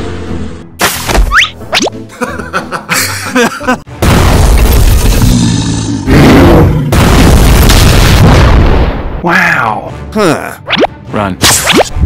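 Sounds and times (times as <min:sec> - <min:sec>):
loud booms with heavy rumble: 0:06.3 - 0:09.2.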